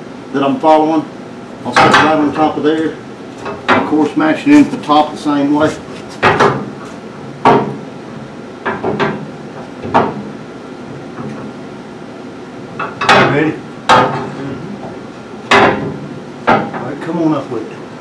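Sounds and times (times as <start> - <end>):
metal clanks and knocks: 1.7 - 2.5, 3.4 - 4.1, 5.7 - 7.8, 8.6 - 10.3, 11.1 - 11.5, 12.8 - 17.0.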